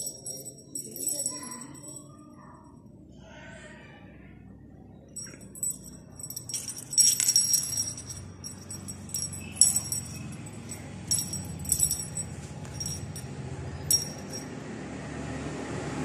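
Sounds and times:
small bell jingling: 0.0s - 2.6s, 5.2s - 14.5s.

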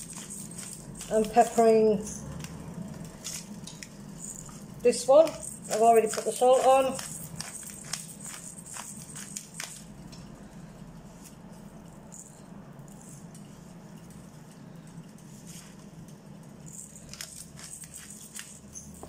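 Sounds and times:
pepper mill grinding: 0.0s - 10.0s, 16.7s - 19.0s
low steady hum: 0.0s - 19.0s.

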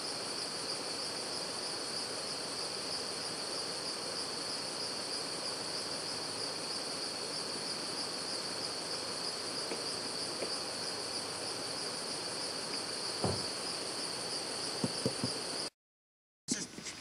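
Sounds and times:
faint knocks: 13.2s - 13.5s, 14.8s - 15.4s.

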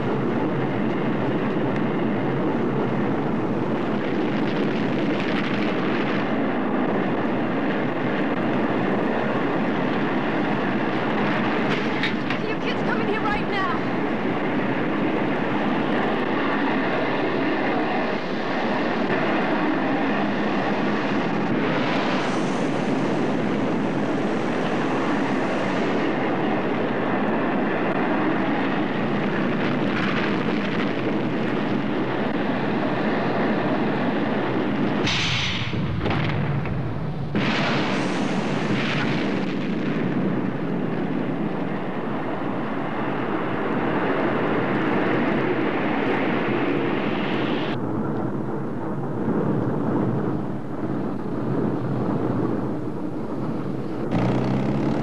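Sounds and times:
deep rumble: 0.0s - 55.0s
rocket roar: 0.0s - 55.0s
sharp hiss: 35.0s - 35.8s.

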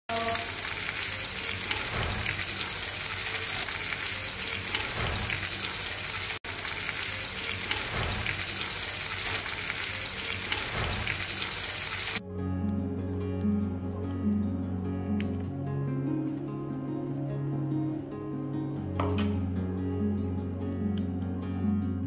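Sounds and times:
meat sizzling in hot oil: 0.1s - 12.2s.

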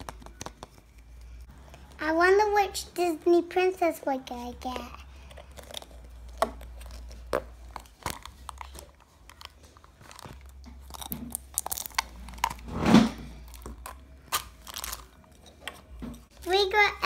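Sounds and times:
plastic wrapper crinkling: 5.2s - 12.7s, 13.4s - 15.4s.

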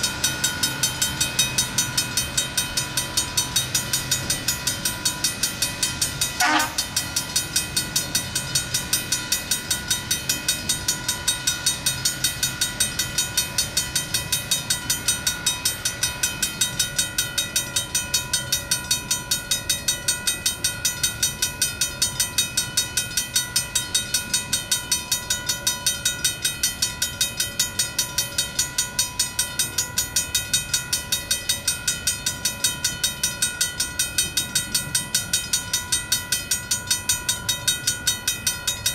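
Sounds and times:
railroad crossing bell ringing: 0.0s - 38.9s.

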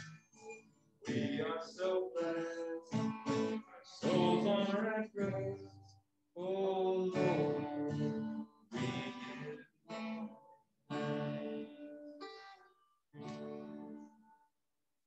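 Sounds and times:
guitar playing: 0.0s - 5.9s, 6.8s - 14.2s
person singing: 1.1s - 9.6s.

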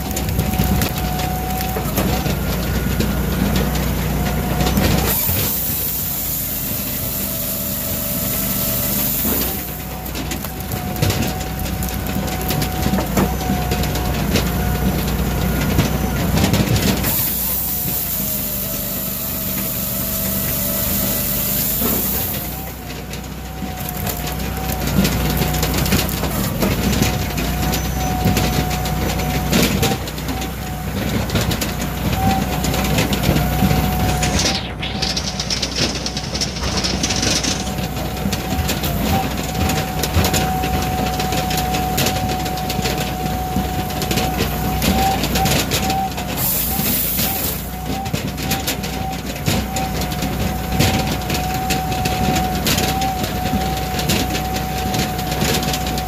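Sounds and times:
firewood processor engine running: 0.0s - 56.0s
wood splitting and falling: 0.0s - 56.0s
chainsaw cutting log: 3.6s - 13.4s, 16.8s - 22.8s.

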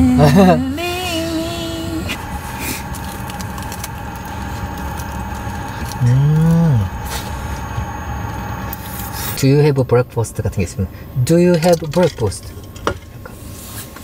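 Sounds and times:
low hum: 0.0s - 14.0s
person humming mmm while eating: 6.0s - 6.9s.

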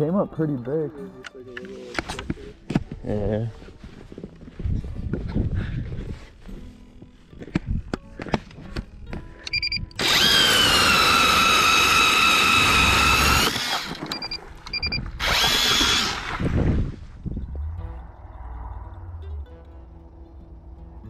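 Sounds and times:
power ice auger motor whine: 10.0s - 14.1s, 15.2s - 16.4s.

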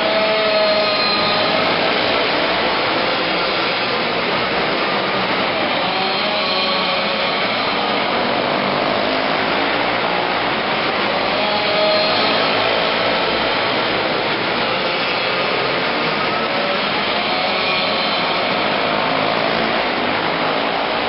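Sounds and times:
race car engines droning: 0.0s - 21.0s.

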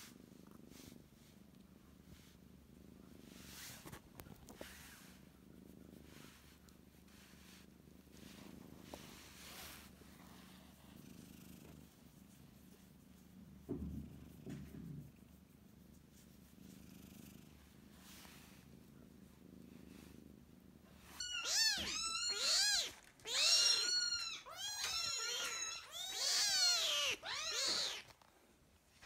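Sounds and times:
cat purring: 0.0s - 22.0s
cat meowing: 21.2s - 28.1s.

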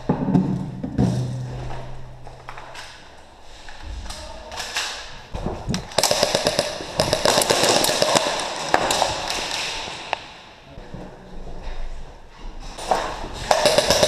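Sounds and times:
airsoft rifle firing bursts: 6.0s - 10.1s, 13.5s - 14.0s.

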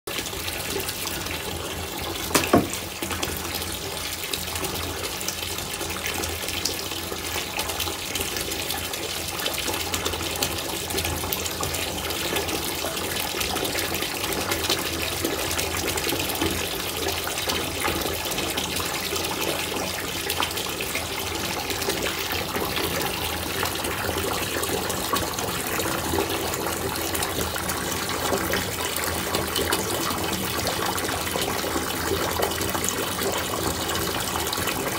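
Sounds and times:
bath bomb fizzing: 0.6s - 3.9s
sharp knock or splash: 2.3s - 2.9s.

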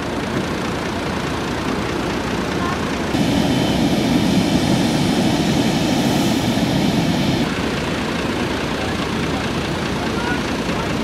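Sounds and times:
tractor engine drone: 0.0s - 11.0s
beach ambience: 3.1s - 7.9s.

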